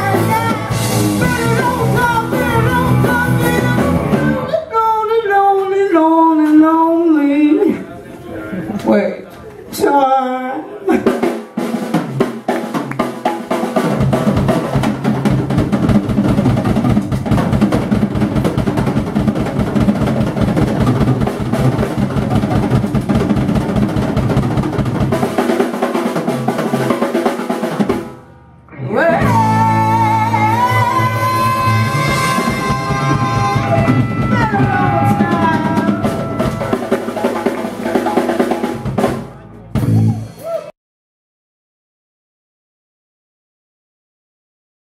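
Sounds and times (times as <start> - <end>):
drum kit: 0.0 - 4.5, 10.9 - 28.4, 29.0 - 40.7
live rock band playing: 0.0 - 4.6, 11.0 - 40.7.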